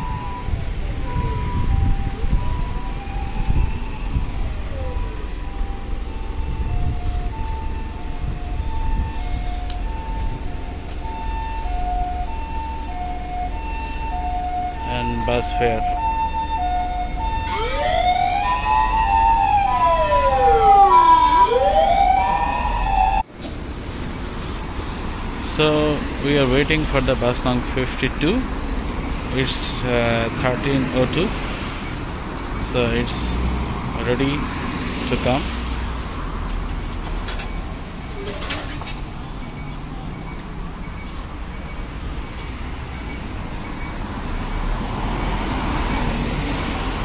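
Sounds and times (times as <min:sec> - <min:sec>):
two-tone siren: 0:00.0 - 0:23.3, 0:39.4 - 0:46.8
wailing siren: 0:00.0 - 0:23.3, 0:41.7 - 0:47.0
traffic rumble: 0:00.0 - 0:47.0.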